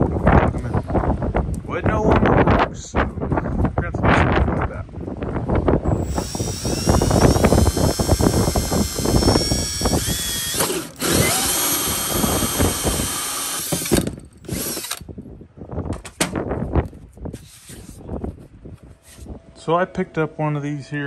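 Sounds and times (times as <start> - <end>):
drill hole saw cutting panel: 5.9 - 15.0.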